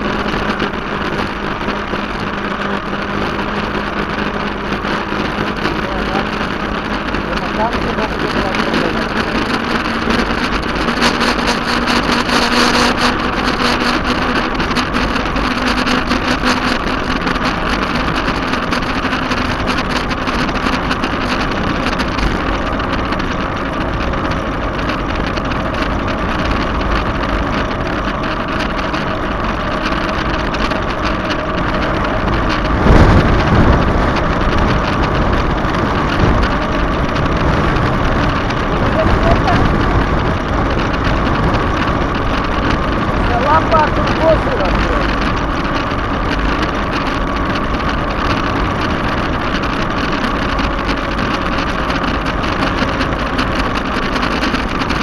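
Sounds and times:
loud low buffet: 0.0 - 55.0
motorcycle engine running: 0.0 - 55.0
wind rushing over camera: 0.0 - 55.0.

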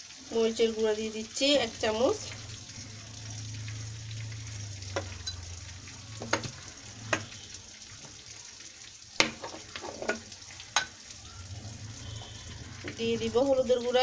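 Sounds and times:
faint frying hiss: 0.0 - 14.0
low hum: 1.2 - 8.1, 10.8 - 14.0.

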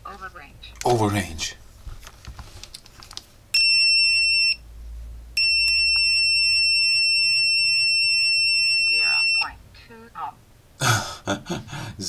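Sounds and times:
multimeter continuity beep: 3.6 - 4.6, 5.4 - 9.6.

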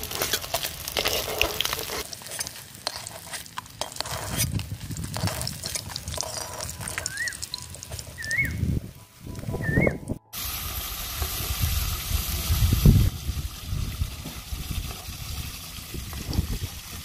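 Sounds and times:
metal spatula scraping pan: 0.0 - 8.2
oil sizzling: 0.0 - 8.9, 10.3 - 17.0.

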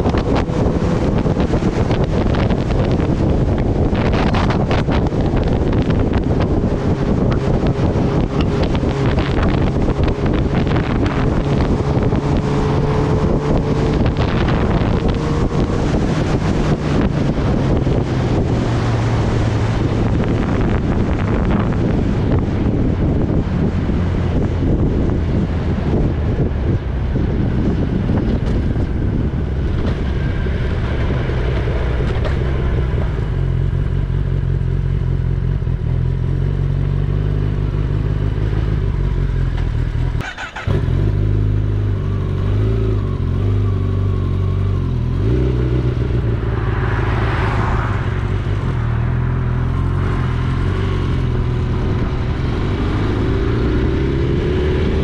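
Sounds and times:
motorcycle engine running: 0.0 - 18.6.

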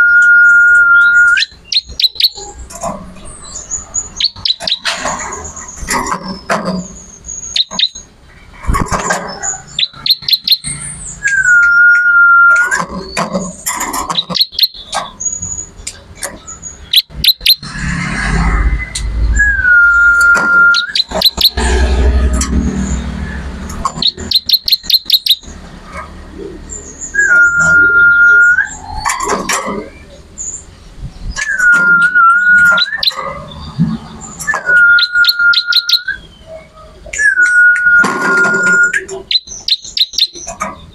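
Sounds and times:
bird singing: 0.0 - 40.9
low rumbles: 16.1 - 24.4.

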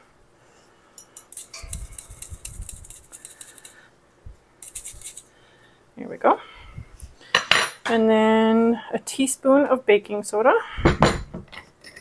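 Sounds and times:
spoon scraping metal sieve: 1.2 - 3.8, 4.6 - 5.3.

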